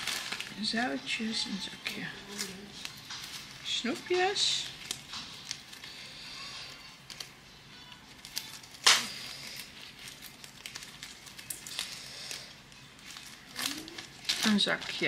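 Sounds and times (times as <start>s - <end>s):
plastic bags crinkling and rustling: 0.0s - 15.0s.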